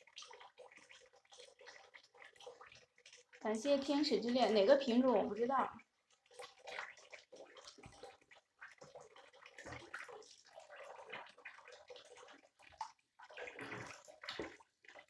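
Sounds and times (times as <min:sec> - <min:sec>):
tap water trickling: 0:00.0 - 0:15.0
water sloshing in a sink: 0:00.0 - 0:15.0.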